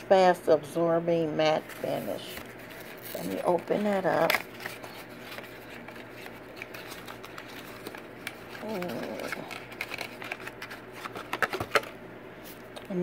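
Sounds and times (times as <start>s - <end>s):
paperboard carton clicks and rustles: 3.1s - 11.9s.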